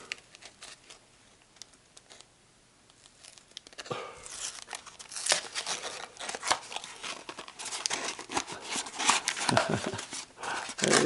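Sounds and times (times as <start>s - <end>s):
cardboard box rustling and crinkling: 3.2s - 11.0s.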